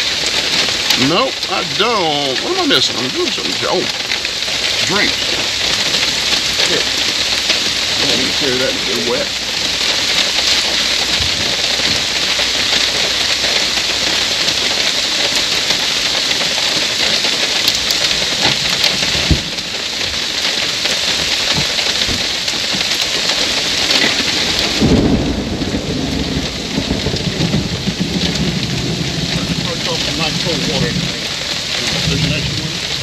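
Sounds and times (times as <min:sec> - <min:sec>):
heavy rain pouring: 0:00.0 - 0:33.0
low rumble of thunder: 0:04.6 - 0:20.4, 0:23.4 - 0:33.0.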